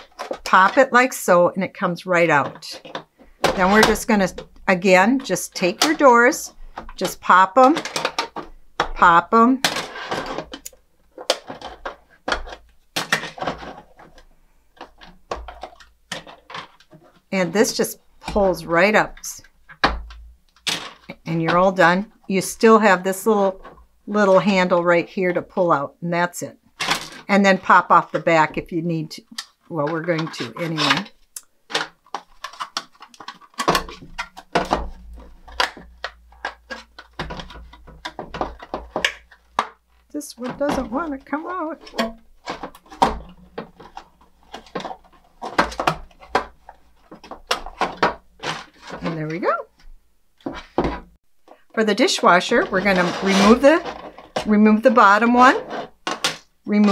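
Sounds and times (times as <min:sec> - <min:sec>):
plastic clicks and knocks: 0:09.6 - 0:17.2, 0:29.3 - 0:49.2.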